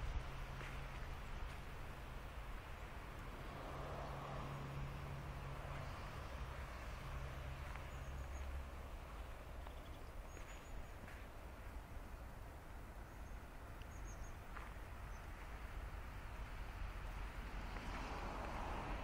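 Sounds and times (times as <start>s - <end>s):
low outdoor rumble: 0.0s - 19.0s
small birds chirping: 5.7s - 16.5s.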